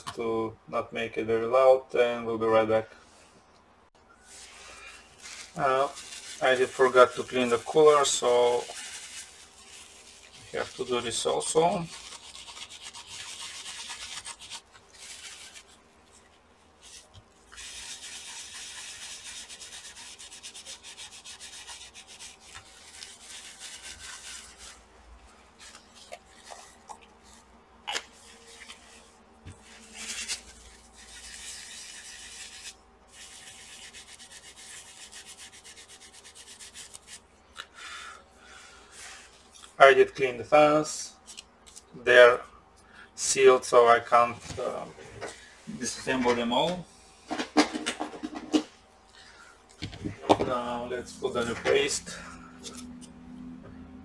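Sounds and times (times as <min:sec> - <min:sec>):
scrubbing and wiping metal: 0:04.3 - 0:37.3, 0:50.9 - 0:52.8.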